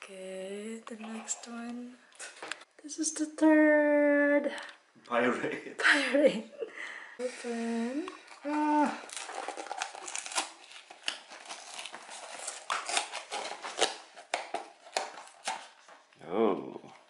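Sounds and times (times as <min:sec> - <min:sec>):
cardboard packaging crinkling: 0:08.2 - 0:16.0.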